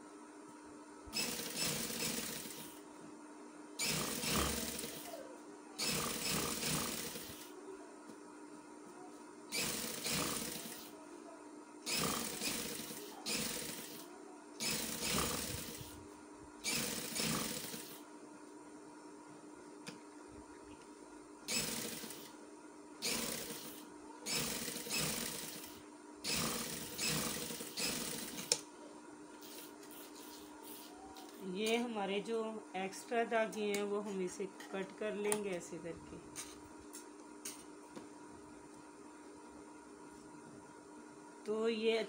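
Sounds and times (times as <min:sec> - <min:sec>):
sewing machine stitching: 0:01.1 - 0:02.8, 0:03.8 - 0:05.2, 0:05.8 - 0:07.5, 0:09.5 - 0:10.9, 0:11.9 - 0:16.0, 0:16.6 - 0:18.0, 0:21.5 - 0:22.3, 0:23.0 - 0:28.6.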